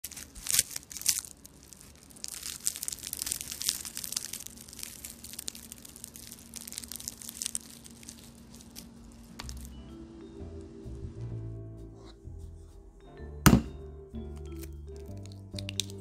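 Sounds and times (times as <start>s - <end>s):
puff pastry crackling: 0.0s - 9.8s, 14.4s - 16.0s.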